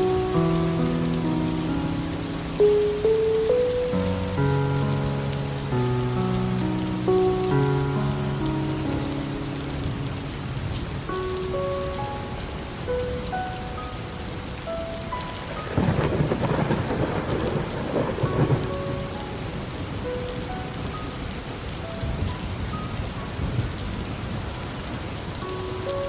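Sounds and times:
steady rain falling: 0.0 - 26.0
thunder rolling: 15.4 - 20.1.

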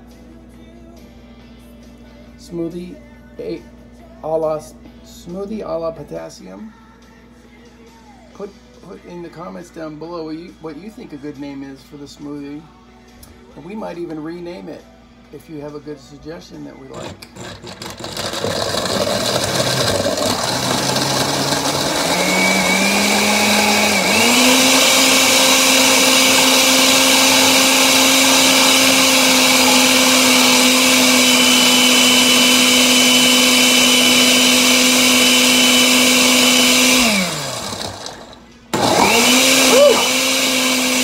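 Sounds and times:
blender motor running: 17.0 - 41.0.

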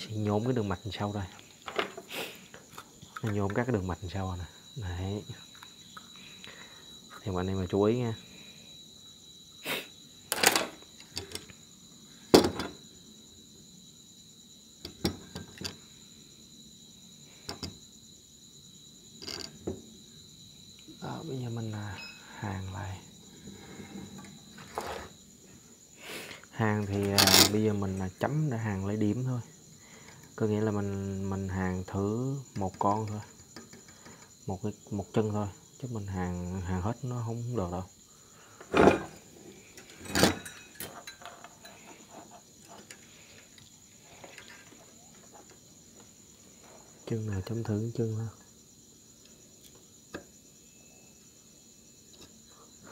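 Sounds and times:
tools clattering on workbench: 1.6 - 3.5, 10.3 - 11.5, 12.3 - 12.8, 19.2 - 19.8, 26.9 - 27.6, 38.6 - 43.6, 44.2 - 45.6.

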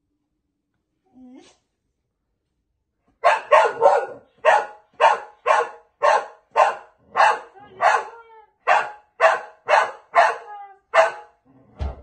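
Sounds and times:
dog barking: 3.2 - 11.4.

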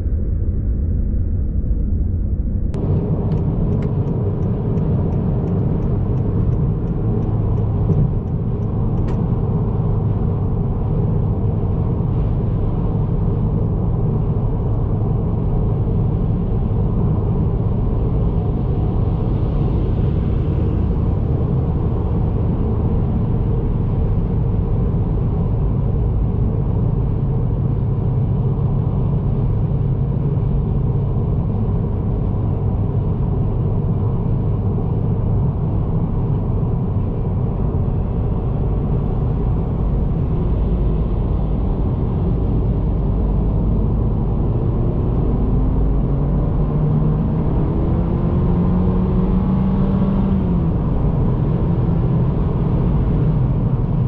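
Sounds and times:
road and engine rumble: 0.0 - 54.0
turn signal ticking: 2.8 - 9.3.

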